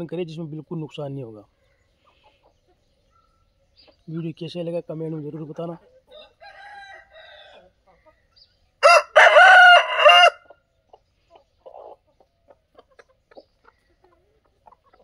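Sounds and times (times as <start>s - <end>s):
chickens clucking: 0.0s - 15.0s
rooster crowing: 6.1s - 7.7s, 8.8s - 10.5s.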